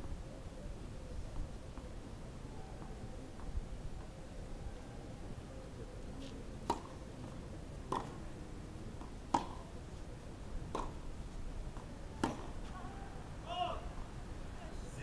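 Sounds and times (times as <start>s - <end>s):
tennis ball hit by rackets: 6.6s - 8.2s, 9.0s - 9.7s, 10.7s - 11.0s, 11.8s - 12.6s.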